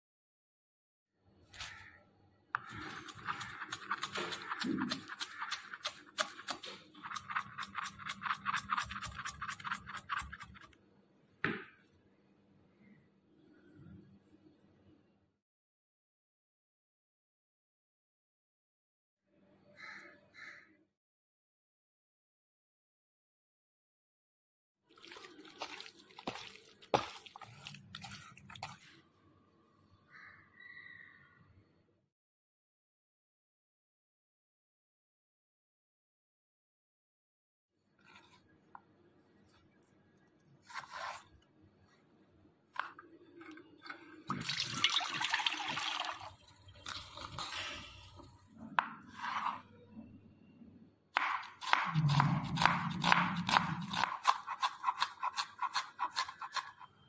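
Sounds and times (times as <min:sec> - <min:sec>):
knife chopping on wooden board: 0:02.6 - 0:10.5, 0:51.2 - 0:56.8
hand squelching meat in marinade: 0:24.9 - 0:29.0, 0:44.2 - 0:48.3.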